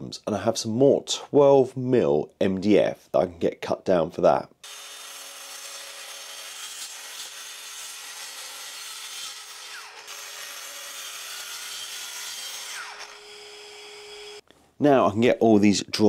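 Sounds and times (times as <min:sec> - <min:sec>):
track saw cutting board: 0:04.6 - 0:14.4.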